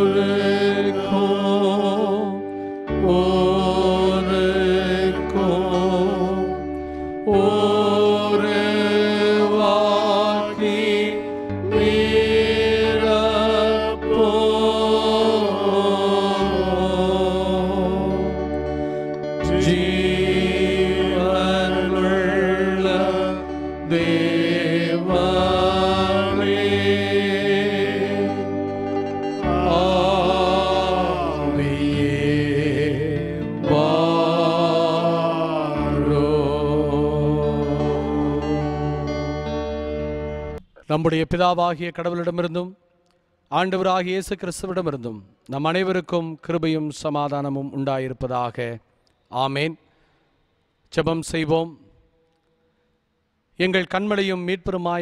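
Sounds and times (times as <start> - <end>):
person singing: 0.0 - 39.8
sustained instrumental chords: 0.0 - 40.6.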